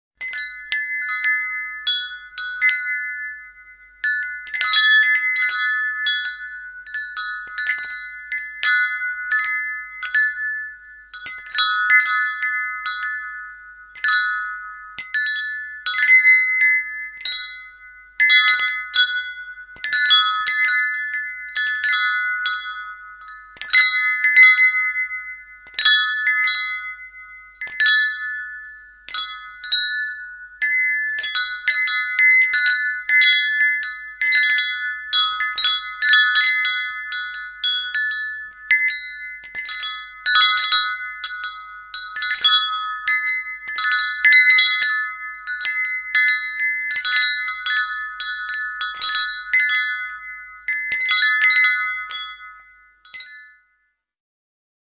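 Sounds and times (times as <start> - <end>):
wind chime ringing: 0.2 - 54.0.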